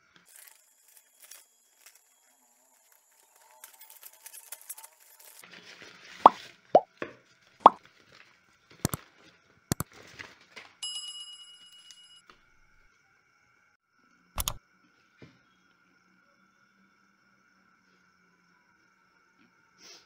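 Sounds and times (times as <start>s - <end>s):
paper packaging rustle: 0.2s - 10.8s.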